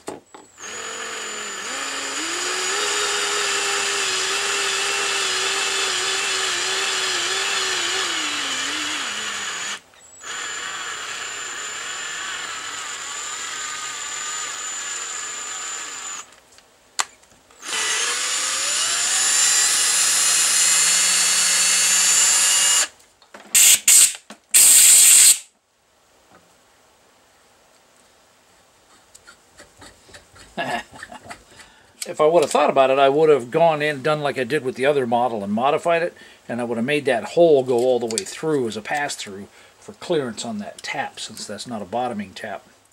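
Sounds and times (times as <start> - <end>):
cordless drill motor whine: 0.5 - 16.3, 17.6 - 22.9, 23.6 - 25.4.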